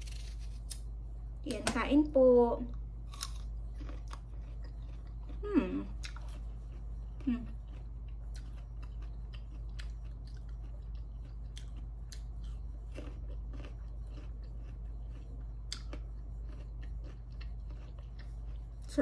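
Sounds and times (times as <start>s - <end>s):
person chewing crunchy food: 0.0s - 0.9s, 3.0s - 19.0s
steady low hum: 0.0s - 19.0s.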